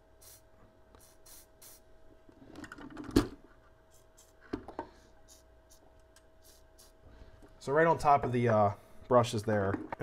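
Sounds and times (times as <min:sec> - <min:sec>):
aerosol can hissing: 0:00.2 - 0:00.4, 0:01.0 - 0:01.8, 0:06.4 - 0:07.0.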